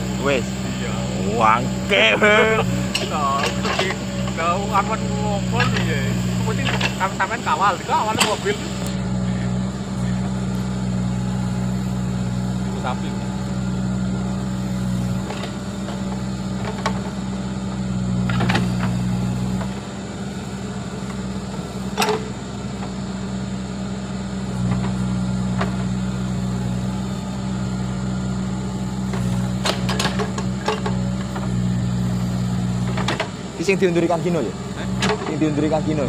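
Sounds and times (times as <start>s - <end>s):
diesel engine working: 0.0s - 36.0s
bucket and linkage knocks: 2.8s - 4.8s, 5.5s - 7.4s, 8.1s - 8.5s, 21.9s - 23.0s, 29.1s - 31.6s, 32.8s - 33.4s, 34.9s - 35.4s.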